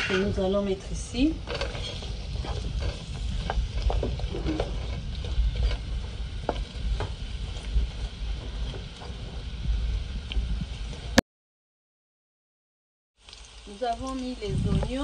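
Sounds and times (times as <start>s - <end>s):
wooden spoon scraping a pan: 0.0s - 9.4s
onions sizzling in hot oil: 0.0s - 11.2s, 13.2s - 15.0s.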